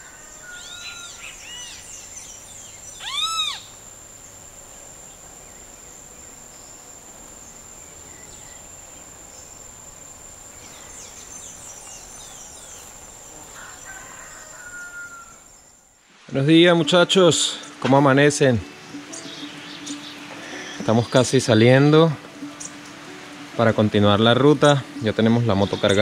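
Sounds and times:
birds calling: 0.0s - 9.8s, 10.5s - 15.9s, 16.6s - 26.0s
high-pitched insect shrill: 0.4s - 1.9s, 2.9s - 3.9s.

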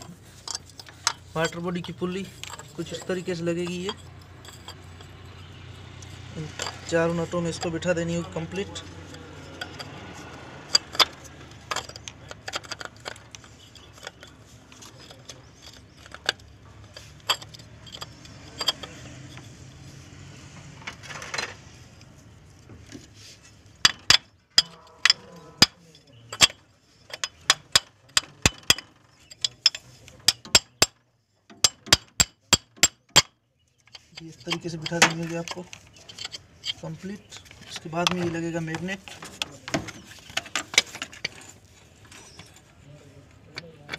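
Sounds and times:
metallic clicks and clinks: 0.0s - 19.6s, 23.8s - 42.7s.

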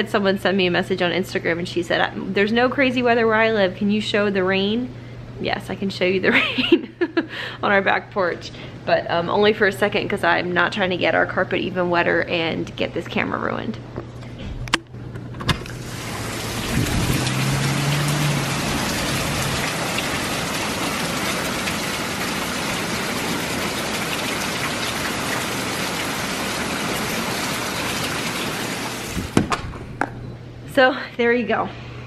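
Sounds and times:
heavy rain pouring: 15.6s - 29.4s.

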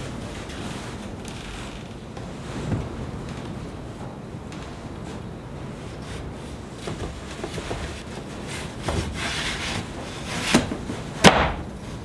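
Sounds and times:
wood scraping against wood: 5.9s - 11.2s
sharp wooden knock: 10.5s - 11.7s.

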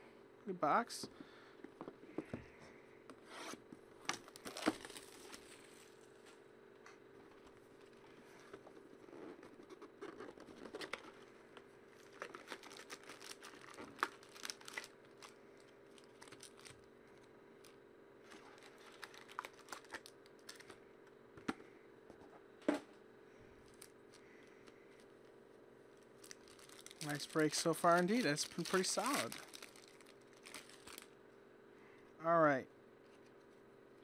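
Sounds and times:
packaging crinkling and tearing: 4.0s - 5.8s, 11.9s - 20.8s, 26.1s - 31.1s.

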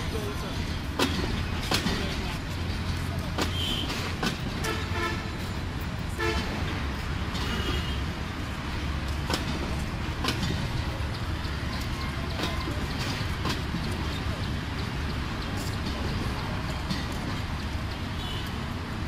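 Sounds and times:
train coaches rumbling: 0.0s - 19.0s
wheels clacking over rail joints: 0.0s - 19.0s
train horn toots: 4.6s - 5.3s, 6.2s - 6.6s.

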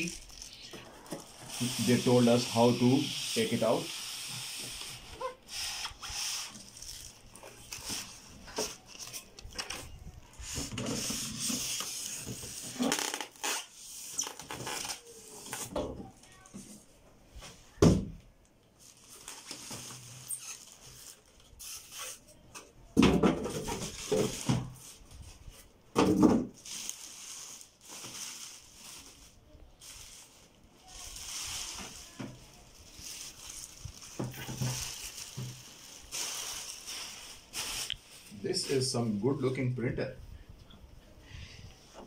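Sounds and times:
plastic wrapping crinkling: 0.0s - 15.7s, 18.7s - 22.4s, 26.5s - 39.0s.

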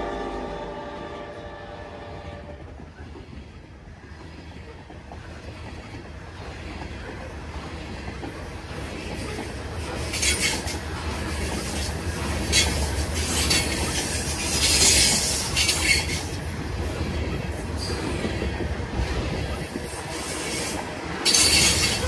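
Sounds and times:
train wheels rumbling: 0.0s - 22.0s
wheel screech: 12.4s - 16.4s, 20.1s - 22.0s.

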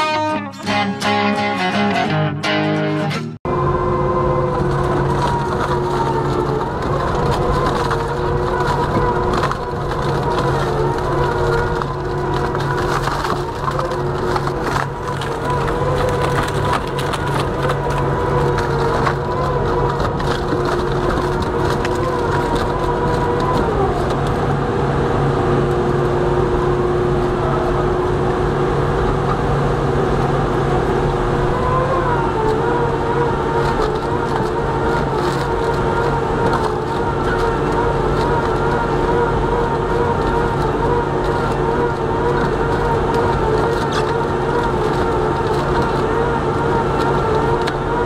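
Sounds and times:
shredder drive drone: 0.0s - 48.0s
wood cracking and splintering: 4.0s - 24.6s, 31.5s - 48.0s.

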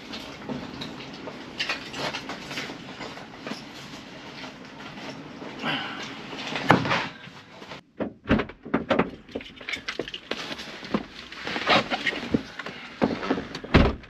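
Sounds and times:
clothing rustle: 0.0s - 7.8s, 9.6s - 13.7s
knocks and clunks: 6.6s - 14.0s.

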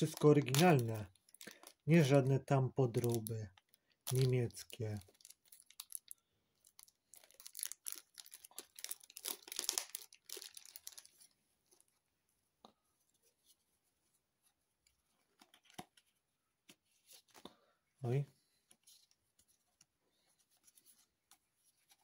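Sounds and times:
plastic card sleeves crinkling: 0.0s - 11.9s.

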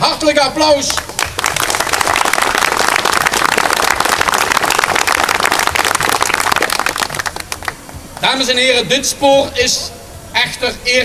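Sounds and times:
crowd applauding: 0.9s - 7.8s.

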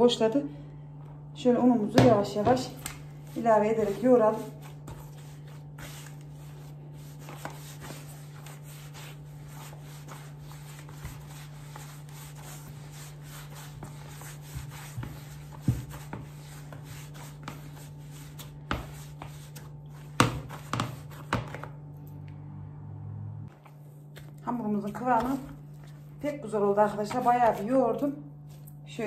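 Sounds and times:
hands kneading dough: 1.9s - 21.8s, 23.5s - 28.8s
low hum: 21.7s - 26.6s.

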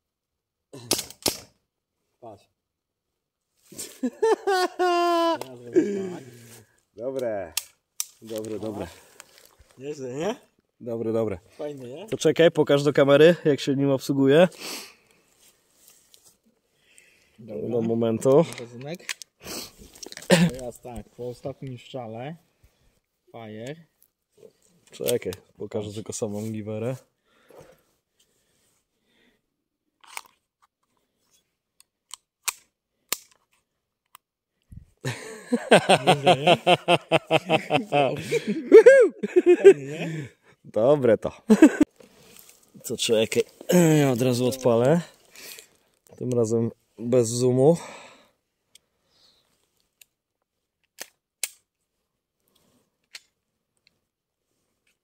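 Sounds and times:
man laughing: 3.8s - 6.4s, 20.3s - 20.7s, 35.0s - 40.3s, 41.5s - 41.9s, 43.7s - 44.2s.

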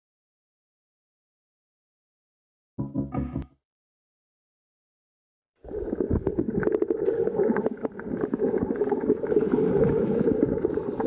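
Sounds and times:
small underwater clicks and crackles: 5.6s - 11.0s
muffled underwater rumbling rush: 5.7s - 11.0s.

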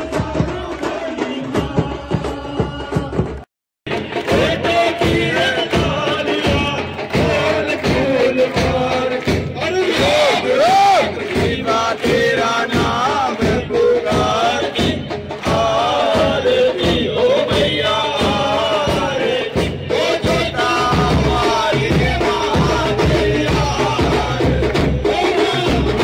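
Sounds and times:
devotional singing: 0.0s - 26.0s
percussion beat: 0.0s - 26.0s
crowd clapping: 3.9s - 14.4s, 15.3s - 16.0s, 20.1s - 26.0s.

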